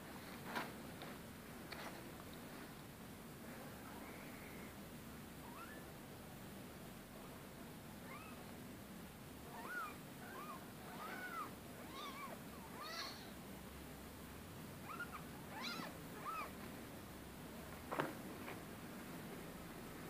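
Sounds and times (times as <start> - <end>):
kittens mewing: 5.4 - 5.9, 9.4 - 13.4, 14.8 - 16.6.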